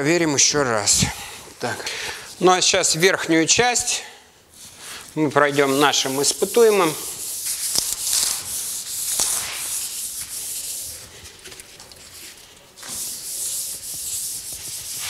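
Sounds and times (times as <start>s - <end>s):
cloth wiping car panel: 12.8s - 15.0s.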